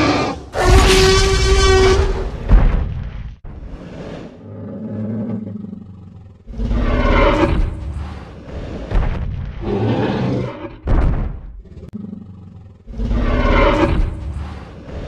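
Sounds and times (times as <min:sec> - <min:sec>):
dinosaur roar: 0:00.0 - 0:02.4, 0:03.6 - 0:08.9, 0:09.6 - 0:10.8, 0:11.6 - 0:15.0
dinosaur growl: 0:03.7 - 0:08.9, 0:11.6 - 0:15.0.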